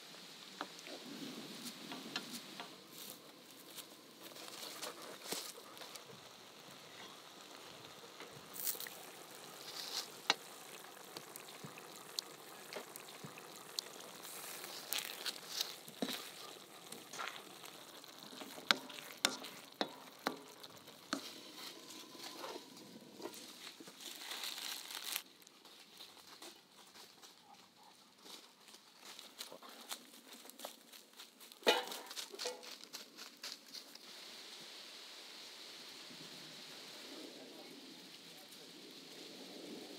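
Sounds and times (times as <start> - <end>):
rice sizzling in a frying pan: 0.0 - 27.4, 28.3 - 39.9
ladle clicking against pan: 18.3 - 21.5.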